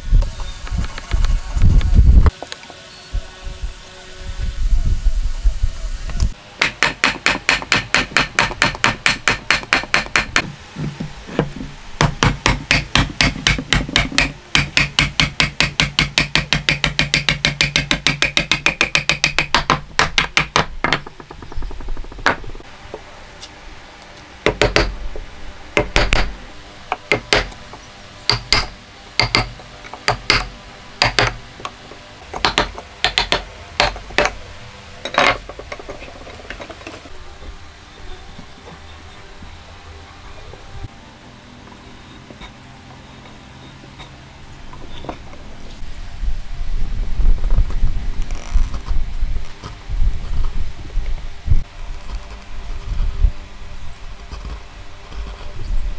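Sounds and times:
mallet striking a chisel in wood: 6.6 - 10.5, 12.0 - 22.5, 24.5 - 24.9, 25.8 - 26.3, 26.9 - 27.5, 28.3 - 31.4, 32.3 - 34.4.

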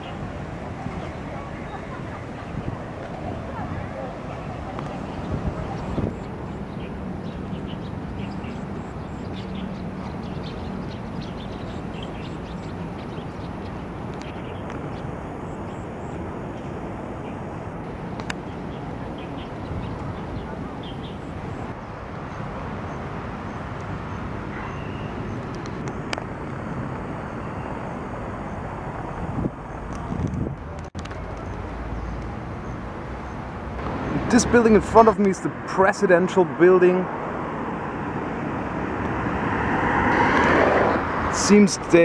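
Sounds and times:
traffic rumble: 0.0 - 42.0
bird chirps: 5.0 - 17.4, 18.5 - 21.7, 24.1 - 25.4.

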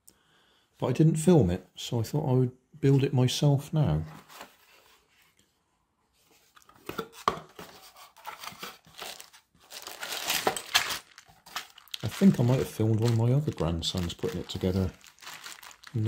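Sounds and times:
plastic bag rustling: 8.3 - 16.0.

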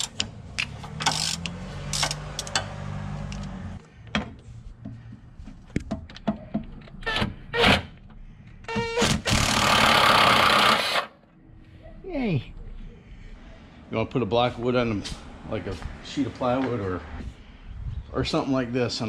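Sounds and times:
ratchet metallic clicks and knocks: 0.0 - 2.8.

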